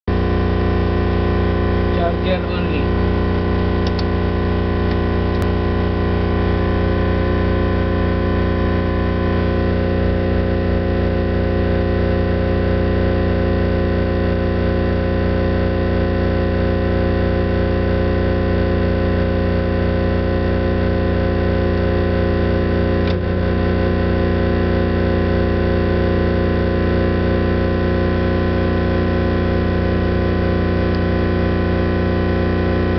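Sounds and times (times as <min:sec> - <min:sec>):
electrical hum-buzz: 0:00.1 - 0:32.9
brief click: 0:03.8 - 0:04.1.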